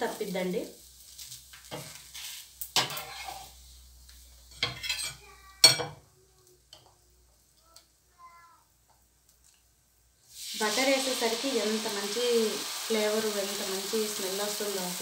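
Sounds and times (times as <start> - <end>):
light sizzle: 0.0 - 15.0
metal spatula scraping griddle: 1.1 - 3.8
metal ladle scraping glass bowl: 2.8 - 3.6.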